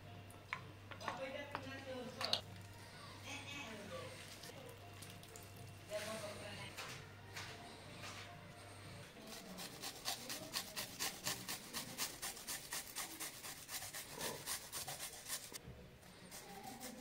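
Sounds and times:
garlic scraping on metal grater: 9.2 - 15.6, 16.3 - 17.0.

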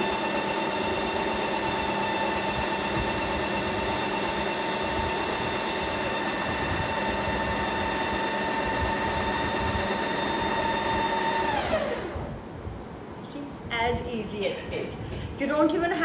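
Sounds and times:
ice cream maker motor whining: 0.0 - 12.4.

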